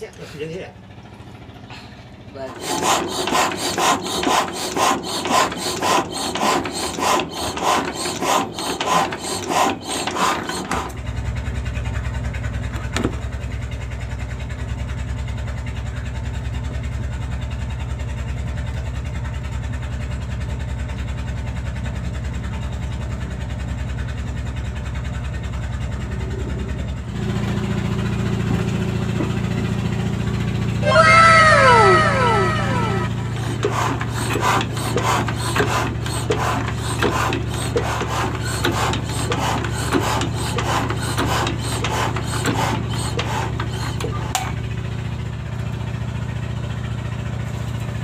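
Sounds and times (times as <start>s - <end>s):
engine-like hum: 0.0s - 48.0s
rhythmic rasping strokes: 2.5s - 10.9s, 30.8s - 43.9s.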